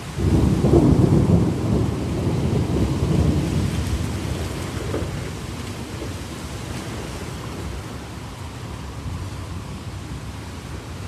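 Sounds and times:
thunder rumbling: 0:00.0 - 0:08.0
heavy rain: 0:00.0 - 0:11.0.

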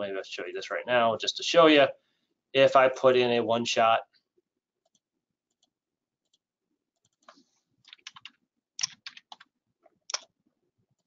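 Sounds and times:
keyboard typing clicks: 0:10.1 - 0:10.3.

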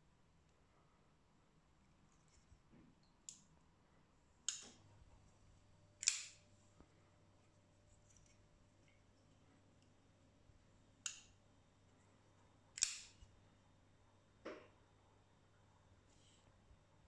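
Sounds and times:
folding knife clicking: 0:06.0 - 0:06.4, 0:12.8 - 0:13.2.

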